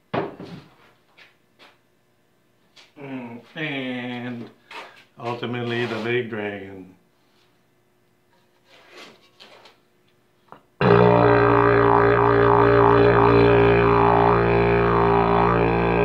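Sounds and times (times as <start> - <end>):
pottery horn long low note: 10.8 - 16.0.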